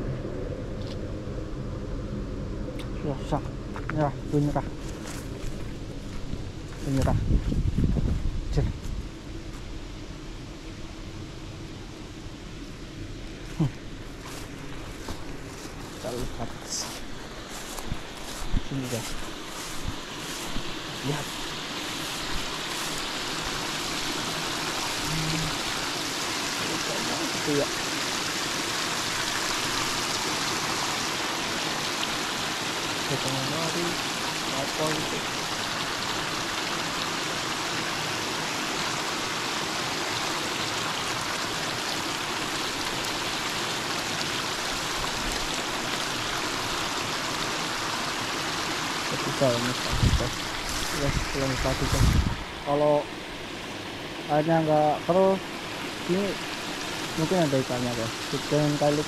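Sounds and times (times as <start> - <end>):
water rushing in a channel: 13.3 - 59.0.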